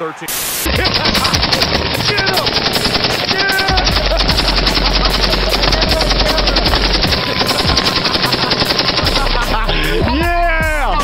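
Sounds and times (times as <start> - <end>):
machine gun firing burst: 0.7 - 9.6.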